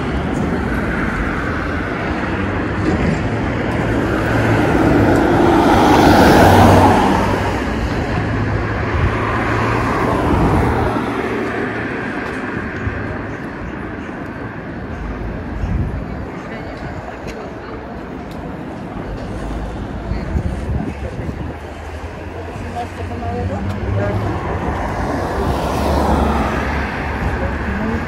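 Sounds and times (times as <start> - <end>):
steady traffic noise: 0.0 - 28.0.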